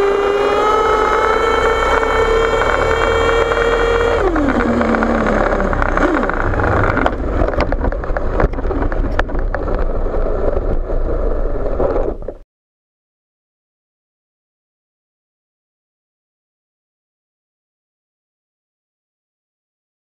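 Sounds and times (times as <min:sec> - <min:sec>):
model truck engine revving: 0:00.0 - 0:07.8
truck rolling noise: 0:00.0 - 0:12.4
sharp clicks and knocks: 0:01.1 - 0:10.9.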